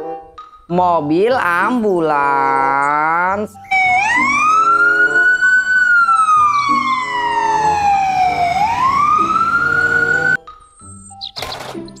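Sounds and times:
ambulance siren wailing: 3.6s - 10.4s.

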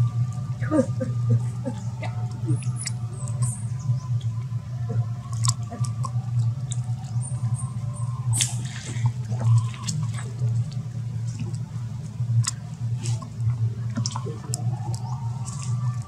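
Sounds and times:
water splashing: 8.2s - 16.0s.

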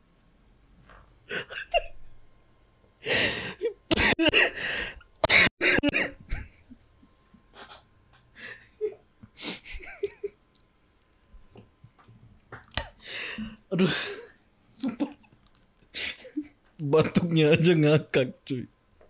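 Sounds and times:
man coughing and gasping: 3.5s - 4.6s, 5.2s - 6.5s.

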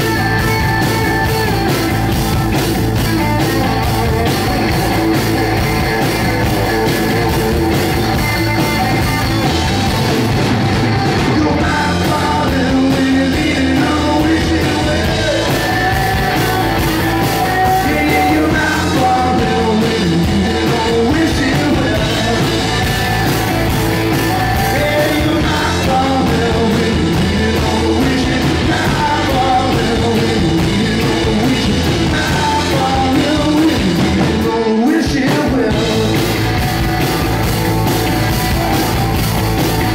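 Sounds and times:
bass guitar: 0.0s - 39.9s
drums: 0.0s - 39.9s
electric guitars: 0.0s - 39.9s
man singing: 11.2s - 23.2s, 24.0s - 36.6s.

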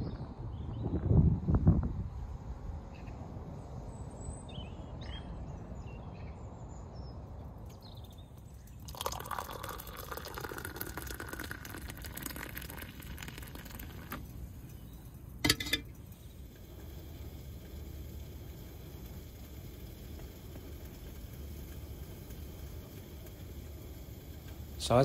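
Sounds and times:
faint bird chirps: 2.9s - 8.9s
water pouring into a mug: 8.6s - 14.7s.

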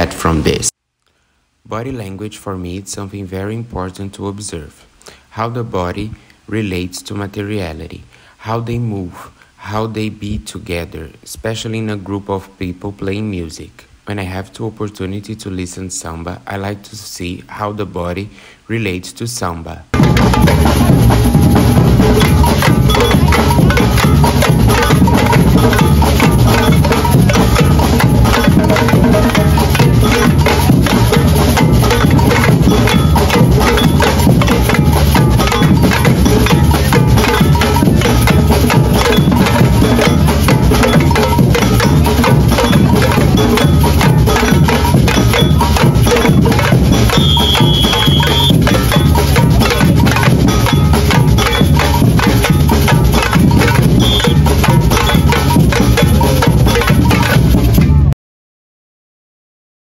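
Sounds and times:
surdo bass drums: 0.0s - 0.7s, 19.9s - 58.2s
stick-struck hand drums: 20.0s - 58.1s.

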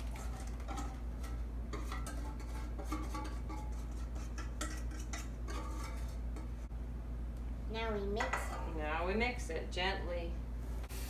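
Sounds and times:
spatula scraping steel bowl: 0.0s - 6.6s.

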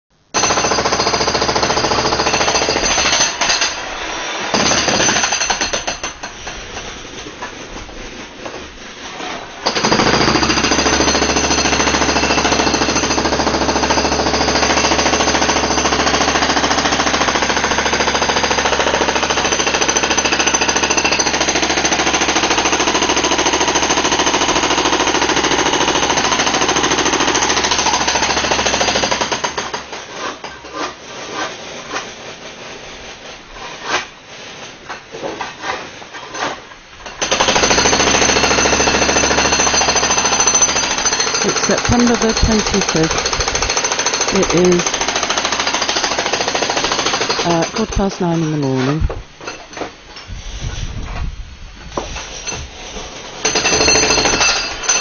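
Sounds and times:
jackhammer running: 0.4s - 3.8s, 4.5s - 6.2s, 9.6s - 29.9s, 37.2s - 48.6s, 53.4s - 55.0s.

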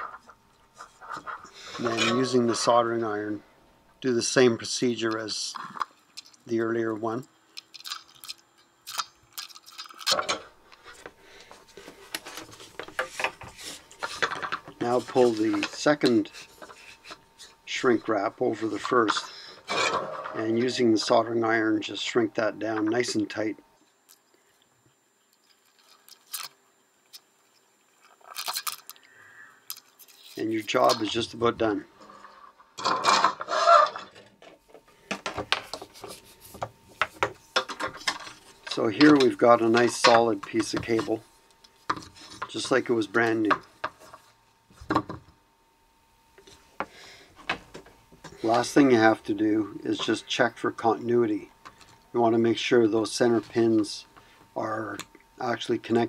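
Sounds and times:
cable rubbing scrape: 33.4s - 34.0s.

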